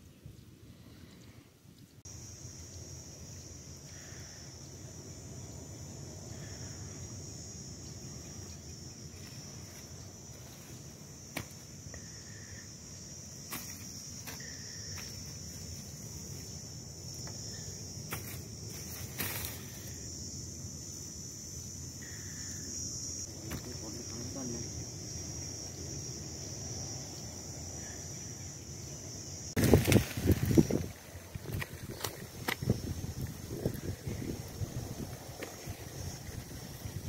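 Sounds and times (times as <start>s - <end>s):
insects chirring: 0.0s - 37.0s
sharp taps and rustles: 11.3s - 11.7s, 13.5s - 15.4s, 18.0s - 19.7s.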